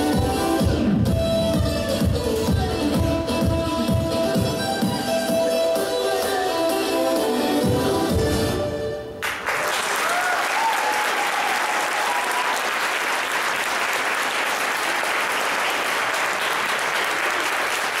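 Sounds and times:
dance music: 0.0s - 9.1s
audience applauding: 9.2s - 18.0s.

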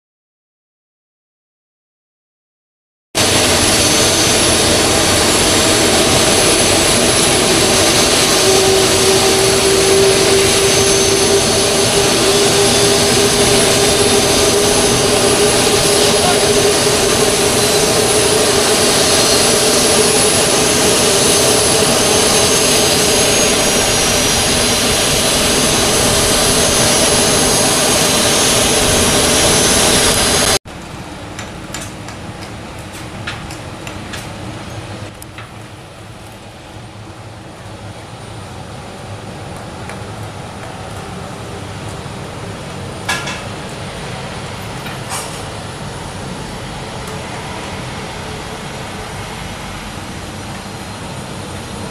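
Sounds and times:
high-pitched engine whine: 3.2s - 33.0s, 34.6s - 51.9s
jet engines roaring: 3.2s - 51.9s.

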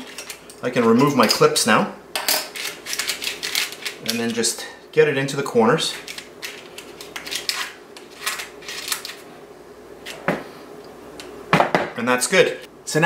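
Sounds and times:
parchment paper crinkling: 5.9s - 9.2s.

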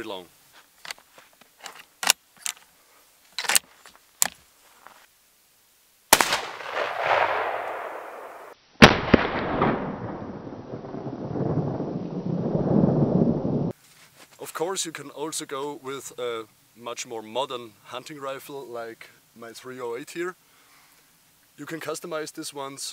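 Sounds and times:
rifle bolt clicks: 1.6s - 2.6s
rifle shots with rolling echo: 6.1s - 12.8s.

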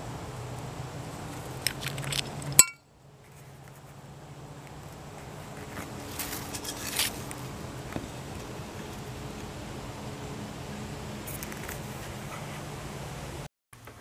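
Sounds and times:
china shard clinking: 2.6s - 2.8s.

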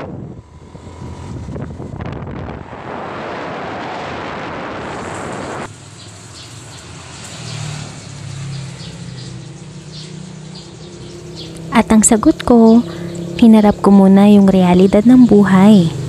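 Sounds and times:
wind rushing over microphone: 0.0s - 5.8s.

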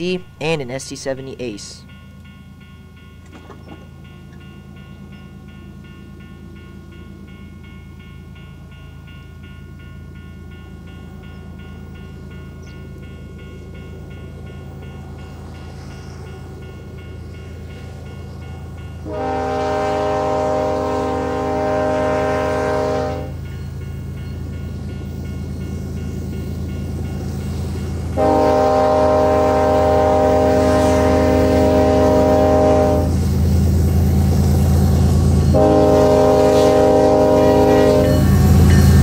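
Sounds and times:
diesel locomotives rumbling: 0.0s - 39.0s
train air horn blast: 19.0s - 23.4s, 28.2s - 33.2s, 35.5s - 38.3s.

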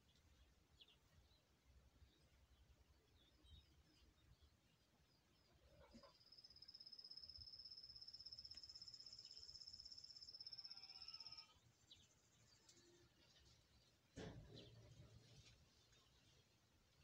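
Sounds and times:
faint bird chirps: 3.0s - 13.5s.

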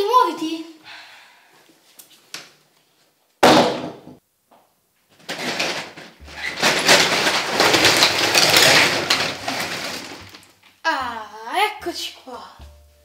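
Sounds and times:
door slamming shut: 3.4s - 4.2s
dense rustling clicking noise: 5.1s - 10.8s.

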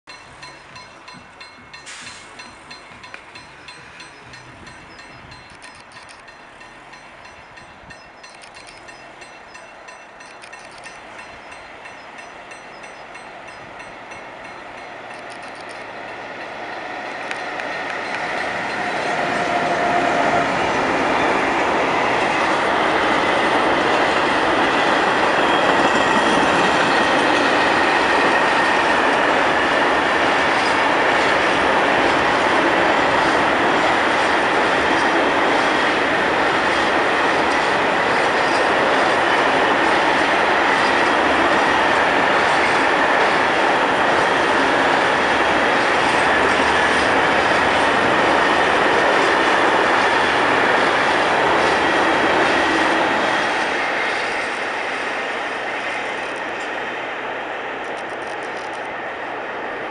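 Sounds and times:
train wheels rumbling on rails: 0.1s - 59.9s.

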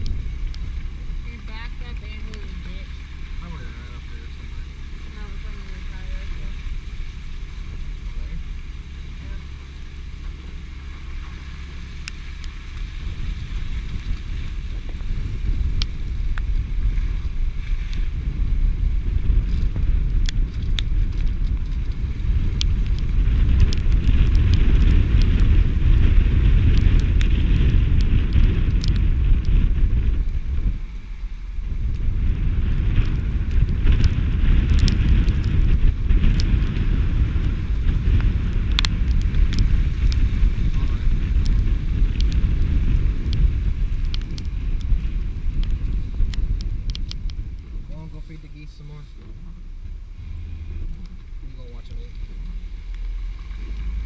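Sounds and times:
vehicle and tyre noise: 0.0s - 54.0s
wind rumbling on microphone: 0.0s - 54.0s
small ticks: 33.0s - 40.2s, 41.4s - 42.6s, 43.2s - 47.7s.

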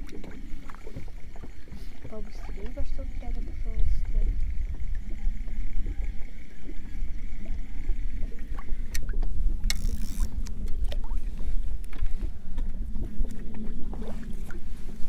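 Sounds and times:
waves slapping inflatable boat: 0.0s - 6.8s
wind rumbling on microphone: 0.0s - 15.0s
fishing reel clicks: 8.8s - 10.8s.

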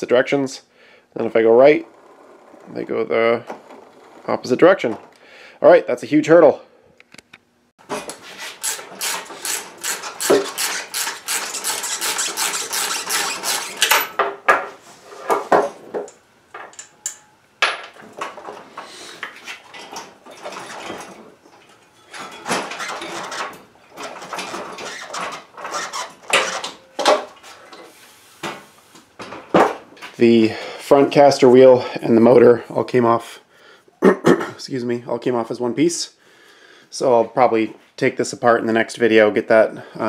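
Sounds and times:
metal clanks and knocks: 13.7s - 18.6s, 19.6s - 27.8s.

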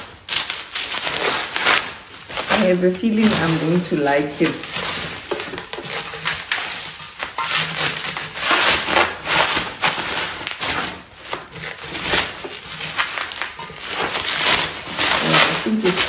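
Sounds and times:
bubble wrap crinkling and crackling: 0.0s - 16.0s.

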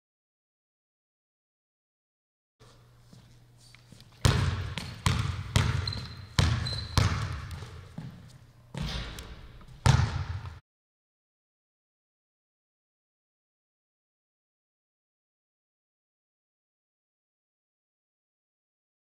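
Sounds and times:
basketball bouncing in gym: 4.0s - 10.6s
faint high squeak: 5.7s - 7.1s.

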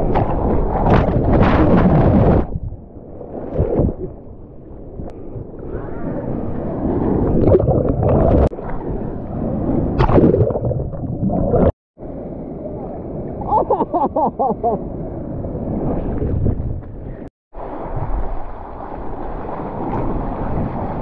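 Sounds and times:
ocean waves churning: 17.1s - 21.0s.

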